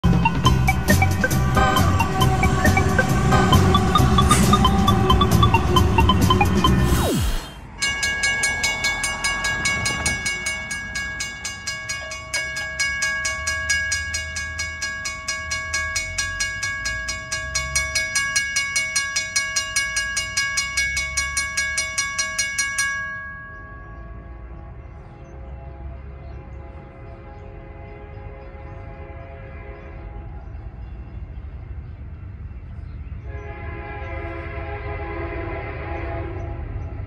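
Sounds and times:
railroad crossing bell ringing: 0.0 - 6.9, 7.6 - 24.8.

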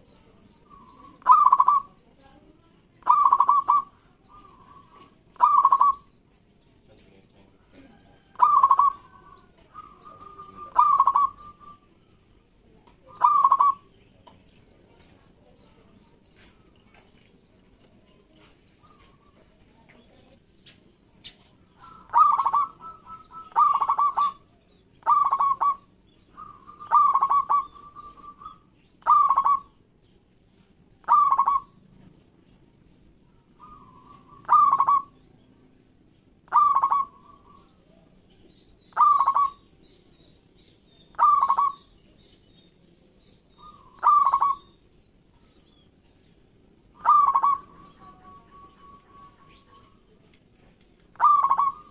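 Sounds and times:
dove cooing: 0.0 - 2.0, 3.0 - 6.1, 7.6 - 11.9, 13.0 - 13.8, 21.7 - 29.8, 31.0 - 31.8, 33.6 - 35.2, 36.5 - 38.1, 38.9 - 39.7, 41.1 - 41.9, 43.6 - 44.7, 46.9 - 50.2, 51.1 - 51.9.

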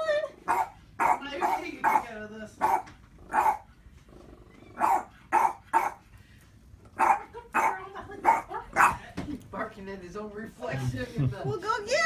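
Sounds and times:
dog barking: 0.5 - 3.7, 4.8 - 6.0, 7.0 - 9.0.

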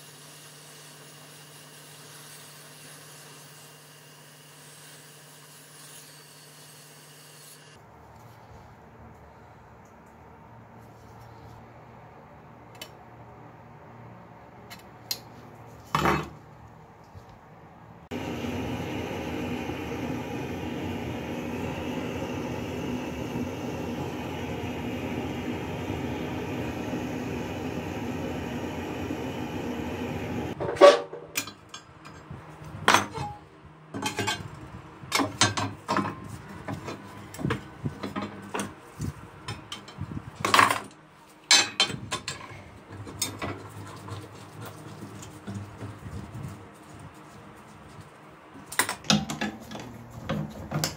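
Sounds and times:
gas torch flame: 18.1 - 30.6.

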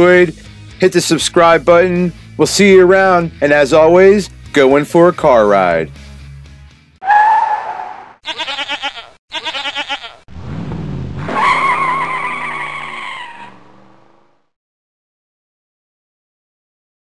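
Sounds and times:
long tyre squeal: 7.0 - 8.2, 11.2 - 13.8
wavering goat bleats: 8.2 - 10.3
vehicle revving: 10.3 - 14.5.

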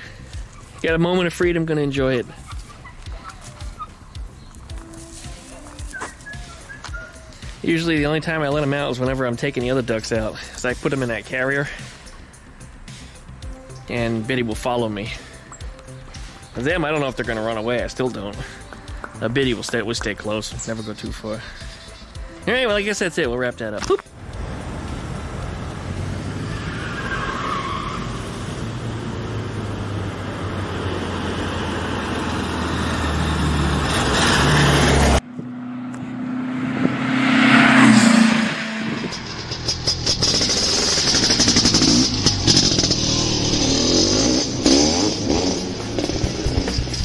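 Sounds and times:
car engine revving: 24.1 - 47.0.

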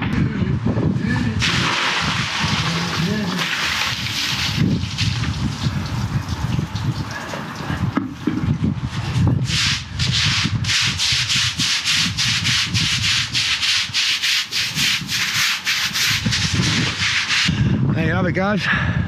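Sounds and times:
broom sweeping wet paving: 1.4 - 5.3, 9.4 - 17.5.

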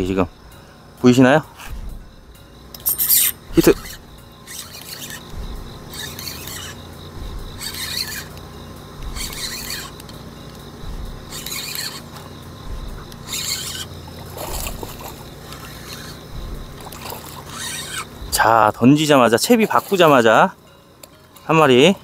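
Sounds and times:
spinning reel being cranked: 2.8 - 6.8, 7.5 - 8.4, 9.0 - 10.1, 11.3 - 12.2, 13.1 - 16.2, 16.8 - 18.1.

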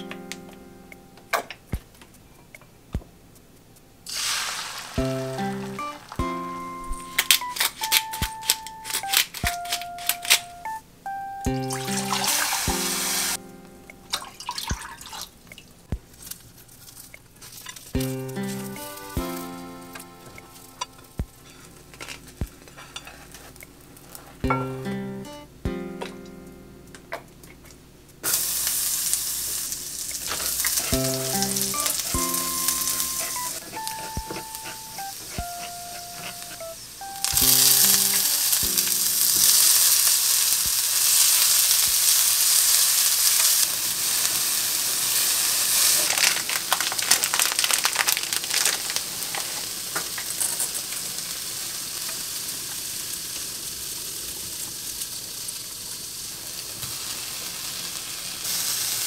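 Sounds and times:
vegetables sizzling in oil: 4.1 - 10.6, 11.5 - 13.4, 17.6 - 21.4, 28.2 - 59.0
chopsticks stirring in a pan: 30.1 - 43.6.

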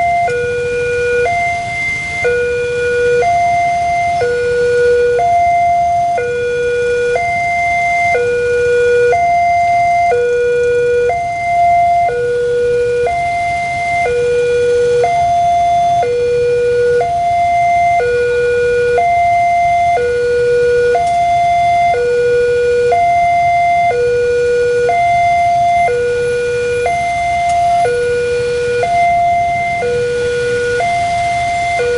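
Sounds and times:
level-crossing alarm two tones: 0.0 - 31.9.

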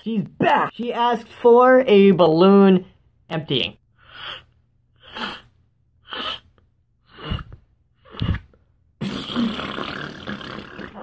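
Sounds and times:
short breath puffs: 4.0 - 8.7.

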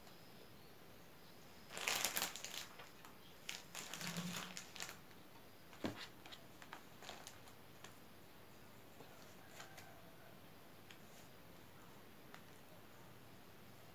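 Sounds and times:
plastic bag crinkling: 1.7 - 7.9.

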